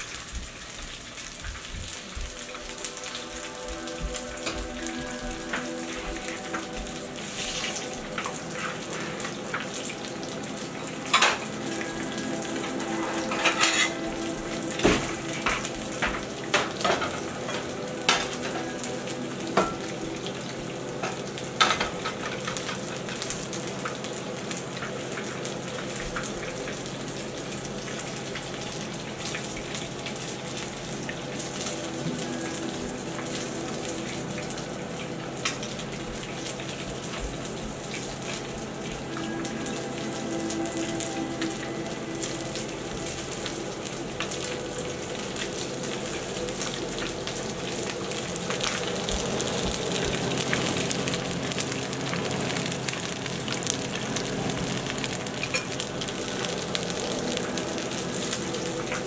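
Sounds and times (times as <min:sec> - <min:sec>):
food sizzling in a pan: 0:00.0 - 0:59.0
dishes and utensils clinking: 0:11.0 - 0:18.9, 0:19.5 - 0:20.0, 0:21.0 - 0:22.8.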